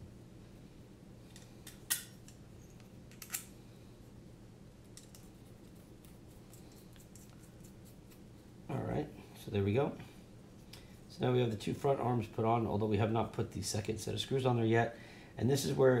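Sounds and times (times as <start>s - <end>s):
low steady hum: 0.0s - 16.0s
small parts clicking and tapping: 3.1s - 3.5s.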